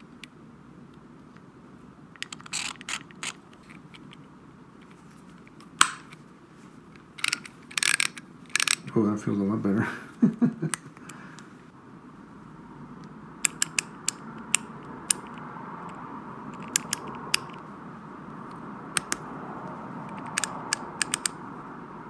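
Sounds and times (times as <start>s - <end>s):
faint steady hum: 0.0s - 22.0s
ratchet clicking: 7.2s - 8.9s, 13.4s - 15.5s, 20.1s - 21.4s.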